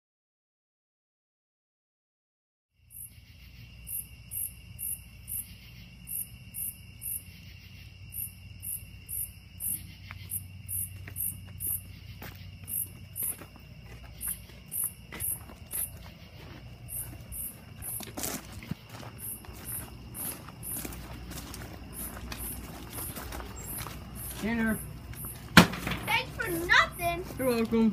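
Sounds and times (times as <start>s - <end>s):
high short insect chirp: 2.8s - 21.1s, 21.8s - 26.3s
steady insect trill: 2.8s - 27.9s
faint footsteps: 9.6s - 27.9s.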